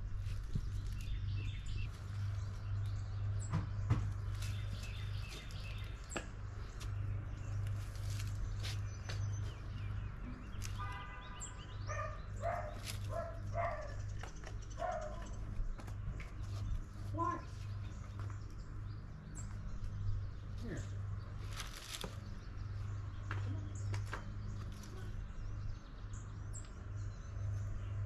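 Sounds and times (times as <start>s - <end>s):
birds chirping: 0.0s - 28.0s
dog barking: 11.9s - 14.0s, 14.8s - 15.3s.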